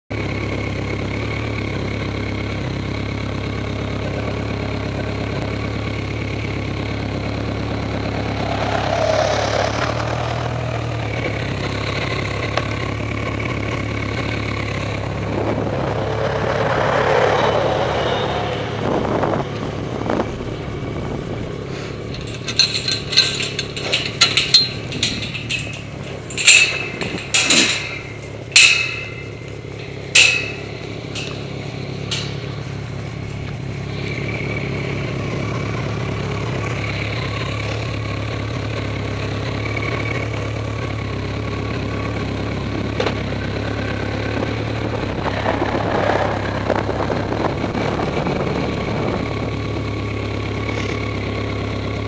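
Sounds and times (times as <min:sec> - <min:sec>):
motorcycle engine idling: 0:00.1 - 0:52.0
sharp knocks and rattles: 0:20.8 - 0:34.6.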